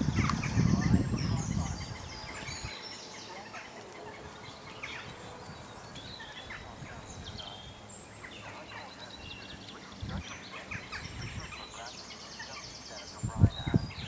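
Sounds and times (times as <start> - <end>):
birds chirping and singing: 0.0 - 14.0
faint outdoor background noise: 0.0 - 14.0.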